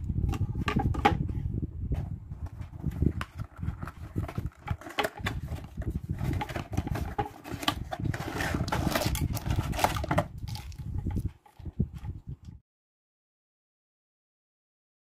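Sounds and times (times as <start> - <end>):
cardboard rustling and scraping: 0.2 - 12.3.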